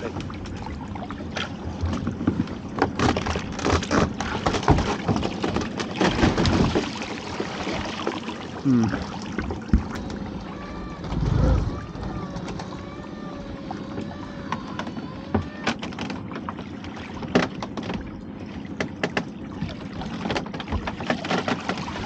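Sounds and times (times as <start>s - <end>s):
water sloshing: 0.0s - 22.0s
rope and pot knocking hull: 1.3s - 8.1s, 8.8s - 16.6s, 18.8s - 22.0s
low thump: 11.0s - 12.2s.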